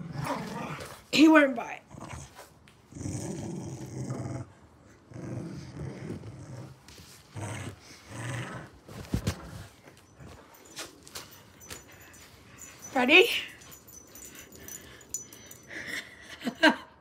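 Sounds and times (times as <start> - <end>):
dog growling: 1.9 - 10.4.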